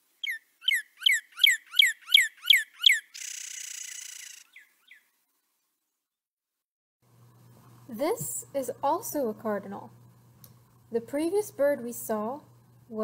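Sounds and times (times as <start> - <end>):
bird whistling downslurred notes: 0.2 - 5.0
fast buzzy bird trill: 0.2 - 5.1.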